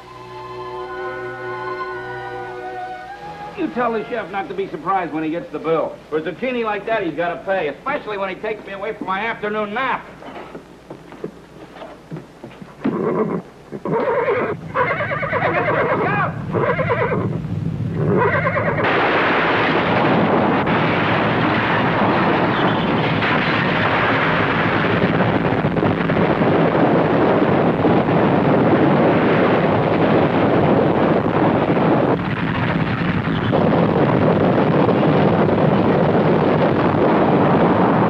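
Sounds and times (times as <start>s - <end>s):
horse whinnying: 12.8s - 17.4s, 18.0s - 18.9s
buildings collapsing rumble: 18.6s - 38.0s.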